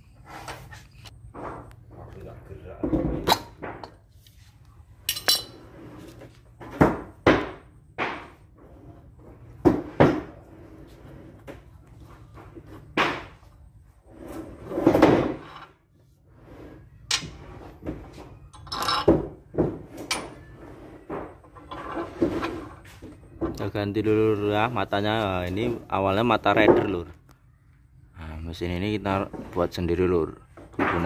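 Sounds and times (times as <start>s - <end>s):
metal clinks and knocks of spanner: 18.5s - 19.1s.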